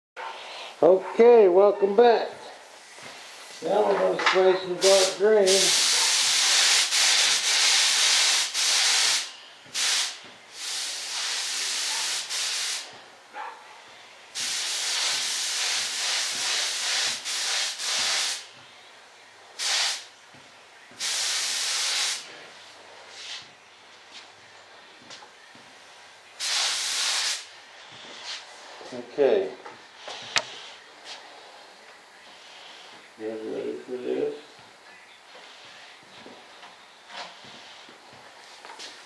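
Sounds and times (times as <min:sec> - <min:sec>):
paint spray gun hissing: 0:03.2 - 0:13.0, 0:14.3 - 0:18.5, 0:19.6 - 0:20.1, 0:20.9 - 0:22.3, 0:26.4 - 0:27.5.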